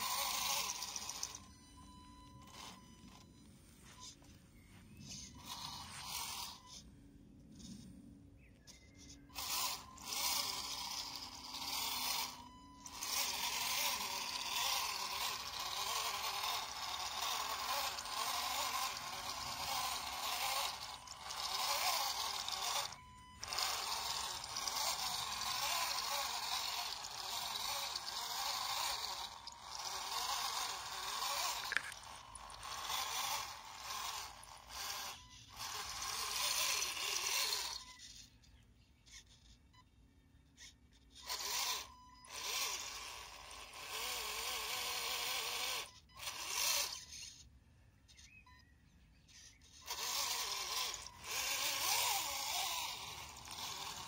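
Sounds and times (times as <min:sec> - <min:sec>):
small electric motor and gearbox: 0:00.0 - 0:54.0
grass scraping along plastic body: 0:02.4 - 0:06.8, 0:08.7 - 0:37.8, 0:49.4 - 0:54.0.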